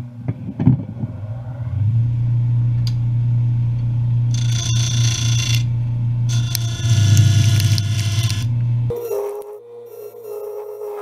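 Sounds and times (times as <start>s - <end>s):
wood lathe humming: 4.2s - 10.0s
turning tool scraping wood: 4.3s - 5.7s, 6.3s - 8.6s.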